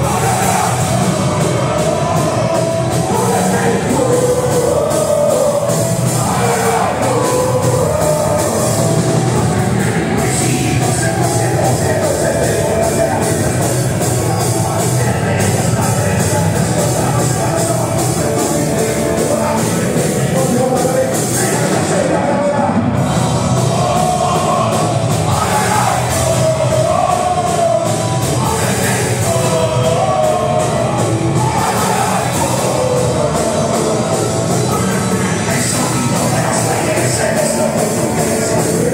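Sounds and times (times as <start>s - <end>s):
punk rock band playing: 0.0s - 38.9s.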